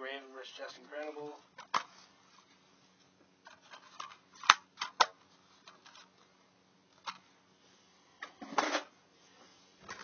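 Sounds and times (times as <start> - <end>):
plastic cases clattering and rubbing: 3.4 - 6.2.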